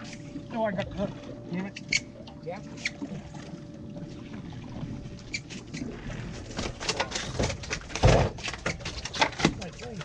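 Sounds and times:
water splashing against boat: 0:00.0 - 0:10.0.

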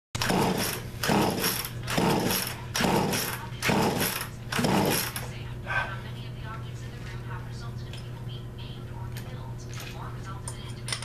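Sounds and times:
chainsaw engine ratcheting strokes: 0:00.2 - 0:05.2.

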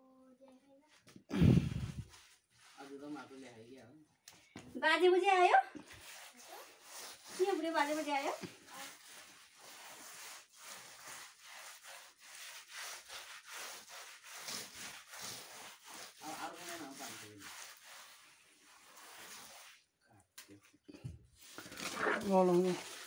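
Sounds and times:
hand rubbing wet mud plaster: 0:01.3 - 0:03.5, 0:05.8 - 0:19.9, 0:21.4 - 0:23.0.

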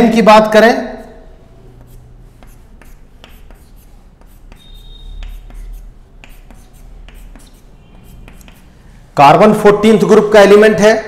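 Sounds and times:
chalk squeak: 0:00.9 - 0:08.8
chalk writing on blackboard: 0:00.9 - 0:09.0.

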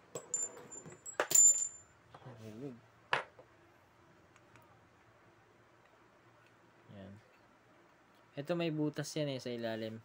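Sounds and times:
small metal parts clinking: 0:00.1 - 0:01.9.

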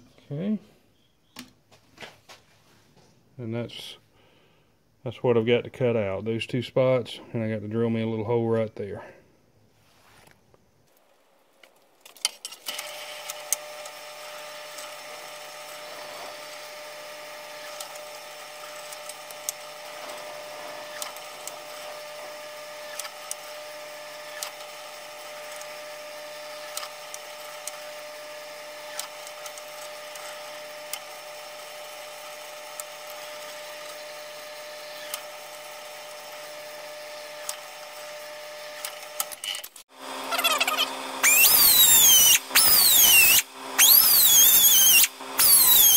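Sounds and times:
drill press motor running: 0:12.1 - 0:45.9
power grinder whining: 0:12.2 - 0:45.9.

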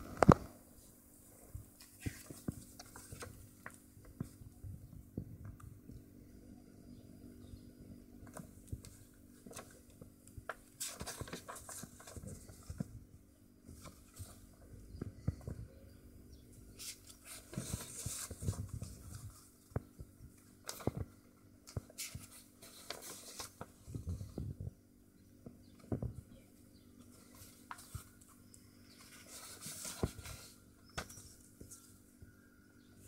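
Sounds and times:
book pages rustling: 0:01.6 - 0:04.6, 0:08.2 - 0:15.6, 0:16.7 - 0:24.7, 0:27.0 - 0:32.0.

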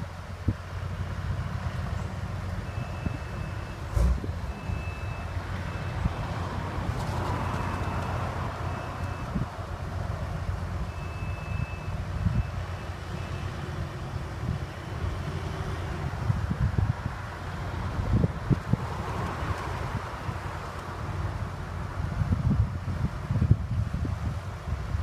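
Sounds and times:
heavy equipment engine running: 0:00.0 - 0:23.9
high-pitched warning alarm beeping: 0:02.6 - 0:03.9, 0:04.5 - 0:06.3, 0:07.5 - 0:09.4, 0:10.9 - 0:13.6
wind buffeting microphone: 0:14.2 - 0:25.0.

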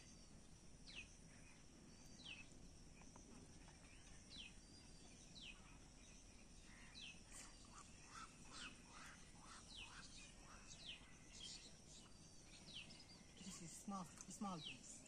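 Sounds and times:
outdoor background noise: 0:00.0 - 0:15.0
bird calling: 0:06.6 - 0:15.0.

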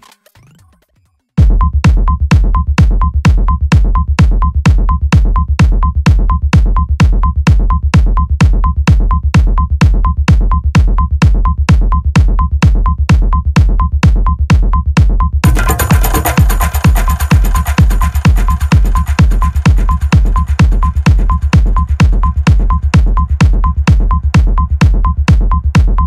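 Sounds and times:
electronic dance music: 0:00.0 - 0:26.0
heavy bass kick: 0:01.4 - 0:26.0.

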